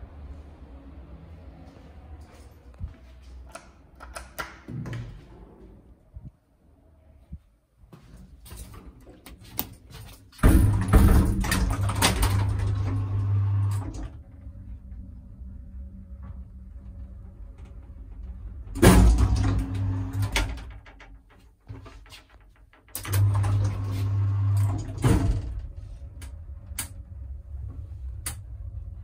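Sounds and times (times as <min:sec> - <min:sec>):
elevator doors closing: 0:10.4 - 0:21.2, 0:22.9 - 0:29.0
elevator car humming: 0:10.7 - 0:20.7, 0:23.0 - 0:29.0.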